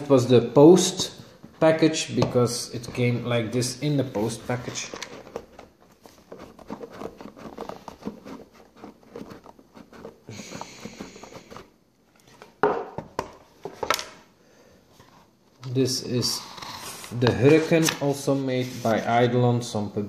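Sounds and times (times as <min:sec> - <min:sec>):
card scraping on card: 0:04.2 - 0:11.7.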